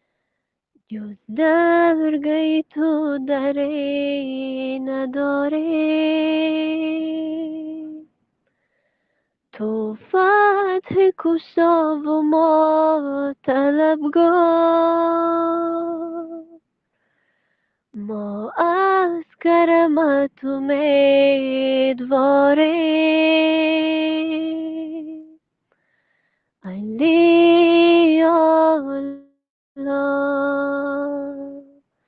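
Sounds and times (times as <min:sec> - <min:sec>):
woman singing unaccompanied: 0:00.8 - 0:08.1, 0:09.5 - 0:16.6, 0:18.0 - 0:25.4, 0:26.6 - 0:31.9.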